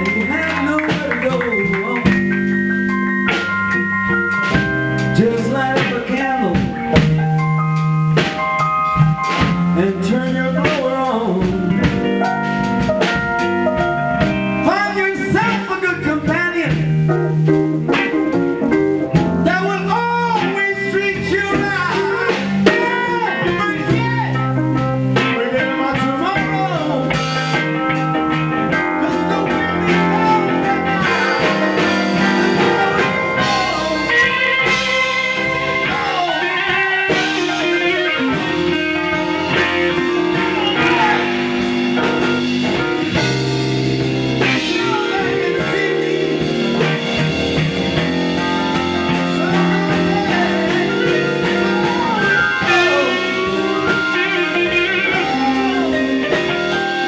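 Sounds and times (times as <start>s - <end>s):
man singing: 0.0s - 2.4s, 5.1s - 7.0s, 9.4s - 12.1s, 14.6s - 17.0s, 19.4s - 24.5s, 25.2s - 27.6s, 28.7s - 41.7s, 44.4s - 47.2s, 48.7s - 56.8s
drum kit: 0.0s - 57.0s
electric bass: 0.0s - 57.0s
electric guitar: 0.0s - 57.0s.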